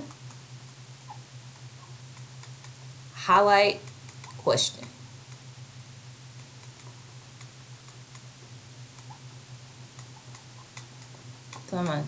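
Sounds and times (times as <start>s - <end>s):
low electrical hum: 0.0s - 12.0s.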